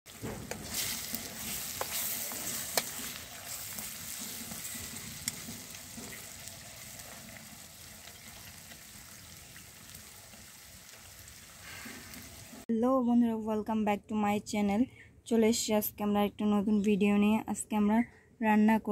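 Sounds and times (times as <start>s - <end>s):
chicken sizzling in a pan: 0.1s - 12.7s.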